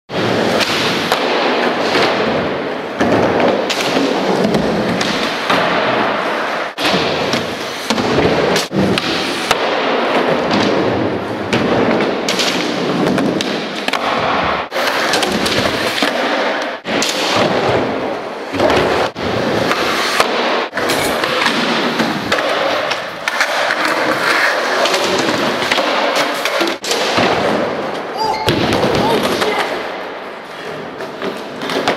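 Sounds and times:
skateboard clacks and slaps: 0:00.1 - 0:31.9
skateboard wheels rolling: 0:01.6 - 0:31.9.

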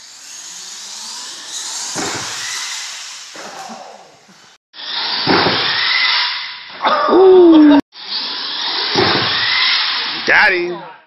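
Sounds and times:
toy truck motor whining: 0:00.0 - 0:05.2
heavy thump: 0:02.0 - 0:02.3.

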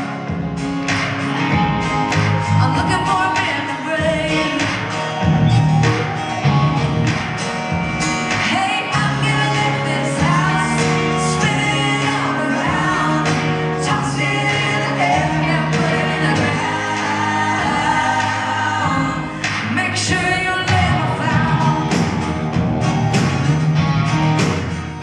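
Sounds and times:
country band playing: 0:00.0 - 0:25.0
woman singing into a microphone: 0:02.5 - 0:04.9, 0:08.4 - 0:22.2.

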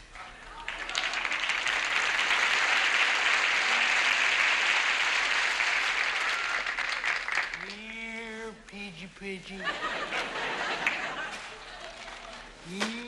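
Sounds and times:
audience applauding: 0:00.3 - 0:07.8, 0:10.5 - 0:12.6.

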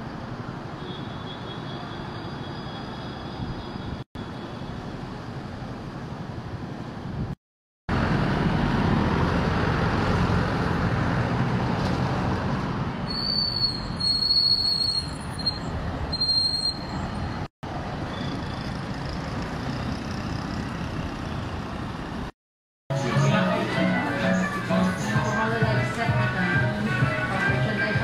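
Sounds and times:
road traffic passing: 0:01.6 - 0:28.0.

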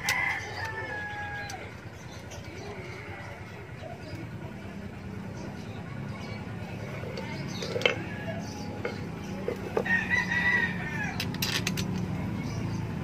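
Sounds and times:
rooster crowing: 0:00.0 - 0:01.7, 0:09.8 - 0:11.2.

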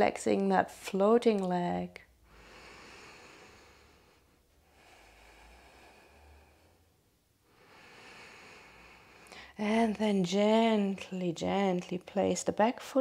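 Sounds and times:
soft slow breathing: 0:02.1 - 0:09.6.

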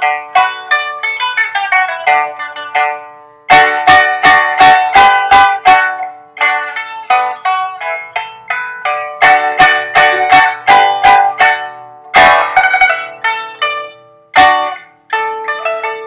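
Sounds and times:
plucked lute melody: 0:00.0 - 0:16.0
strummed chord: 0:00.0 - 0:16.0.

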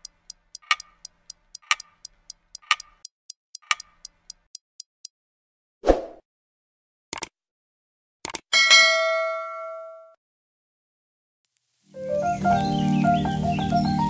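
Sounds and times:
clock ticking: 0:00.0 - 0:05.1
mouse clicks: 0:00.0 - 0:05.1, 0:08.2 - 0:08.4.

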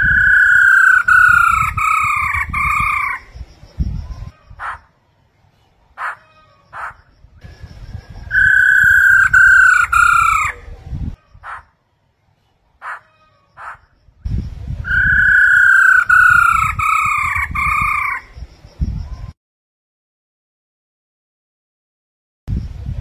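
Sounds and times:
bird whistled calls: 0:00.0 - 0:03.3, 0:06.0 - 0:10.6, 0:14.9 - 0:19.3.

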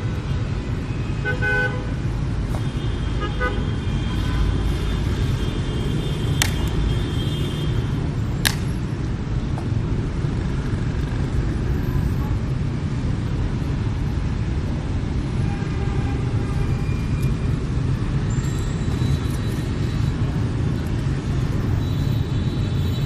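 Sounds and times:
street traffic rumble: 0:00.0 - 0:23.0
sharp clicks: 0:08.4 - 0:08.7.

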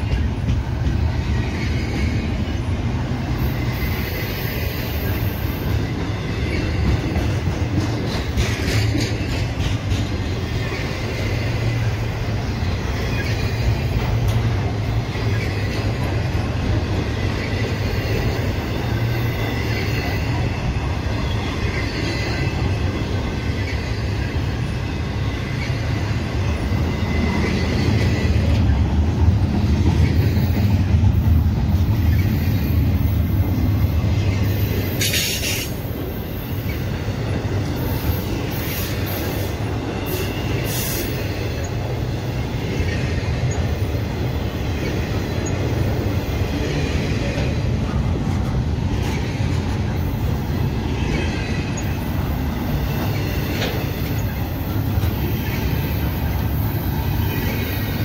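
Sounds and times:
train rumbling over rails: 0:00.0 - 0:58.0
wheels clicking over rail joints: 0:05.0 - 0:20.4, 0:52.8 - 0:55.9.

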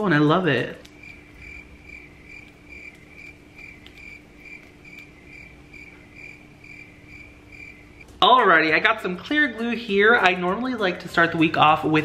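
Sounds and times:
faint low hum: 0:00.0 - 0:12.0
rhythmic high-pitched chirping: 0:01.0 - 0:08.0.

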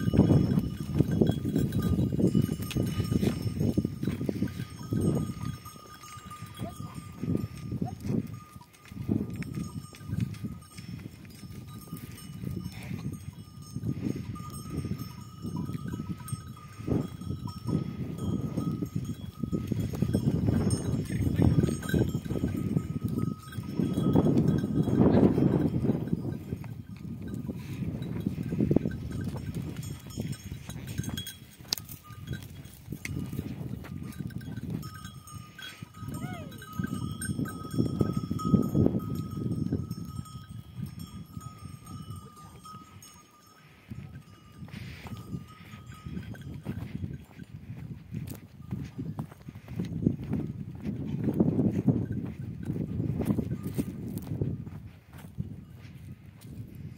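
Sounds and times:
animals shuffling on rocks: 0:00.0 - 0:13.6, 0:18.2 - 0:37.7
goat bells clinking: 0:00.0 - 0:56.9.

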